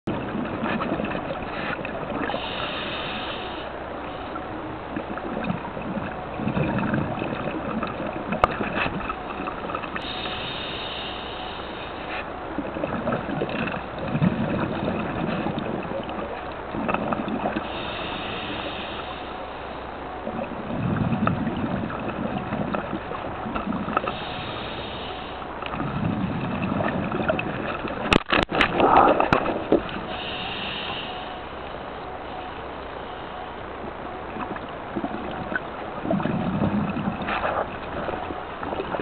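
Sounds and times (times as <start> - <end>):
exhaust bubbles rumbling: 0.0 - 39.0
regulator hiss on inhale: 2.2 - 4.4, 10.0 - 12.3, 17.6 - 19.8, 24.0 - 25.5, 30.0 - 31.7.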